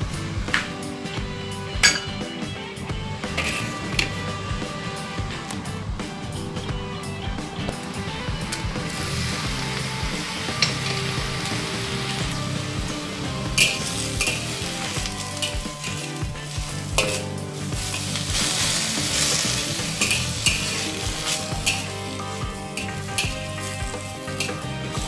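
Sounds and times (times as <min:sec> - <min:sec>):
vegetables sizzling in wok: 0:00.0 - 0:05.7, 0:07.8 - 0:25.0
spatula scraping pan: 0:03.2 - 0:05.5, 0:12.0 - 0:25.0.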